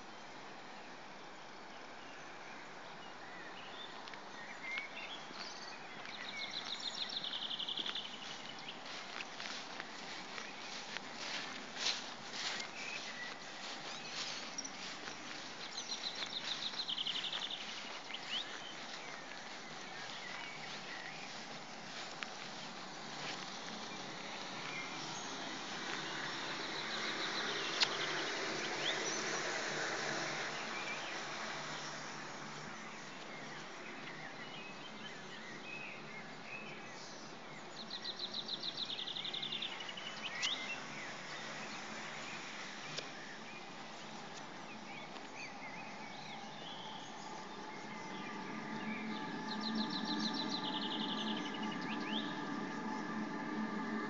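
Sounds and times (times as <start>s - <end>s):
background hiss: 0.0s - 54.0s
songbirds chirping: 0.0s - 54.0s.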